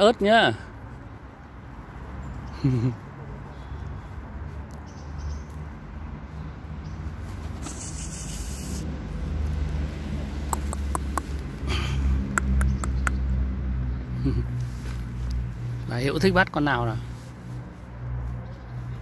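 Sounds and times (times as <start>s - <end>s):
low hum of traffic: 0.0s - 19.0s
brief hiss: 7.6s - 8.9s.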